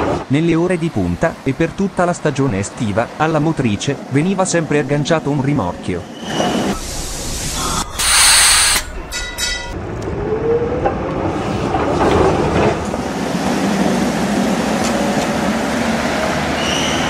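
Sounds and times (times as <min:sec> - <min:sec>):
tram motor whine and rumble: 0:00.0 - 0:17.0
tram air hiss: 0:06.2 - 0:09.1
tram bell ringing: 0:08.7 - 0:10.0.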